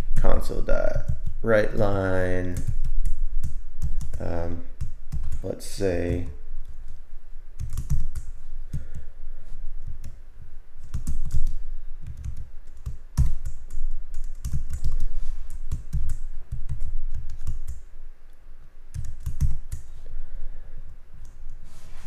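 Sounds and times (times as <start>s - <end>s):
typing on computer keyboard: 2.5s - 4.2s, 7.6s - 8.9s, 10.8s - 17.8s, 18.9s - 19.9s.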